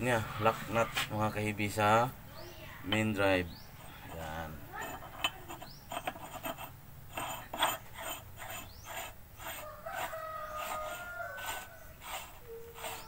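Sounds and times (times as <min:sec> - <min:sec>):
rooster crowing: 0:09.5 - 0:13.0.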